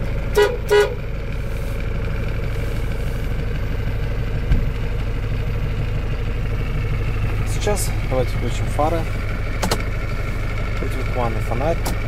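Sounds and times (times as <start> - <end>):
diesel truck engine idling: 0.0 - 12.0
short knock: 4.5 - 4.7.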